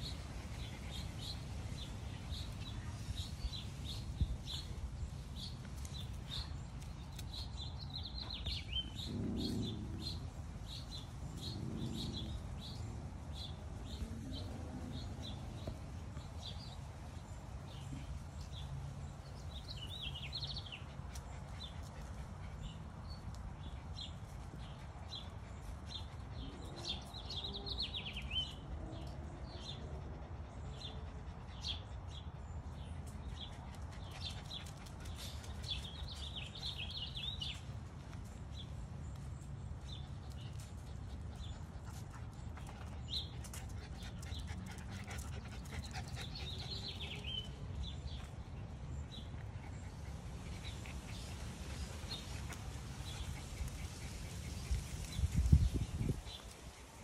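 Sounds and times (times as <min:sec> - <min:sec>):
puppies playing: 0:29.9 - 0:55.4.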